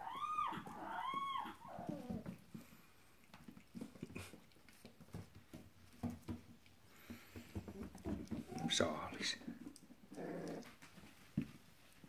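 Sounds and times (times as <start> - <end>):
puppy whining: 0.0 - 2.6, 8.3 - 8.9, 9.8 - 11.0.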